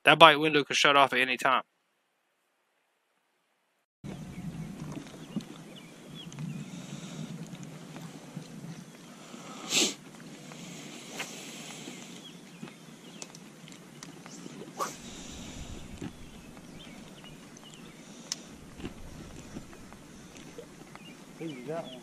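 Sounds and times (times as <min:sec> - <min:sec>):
faint bird chirps: 0:14.2 - 0:22.0.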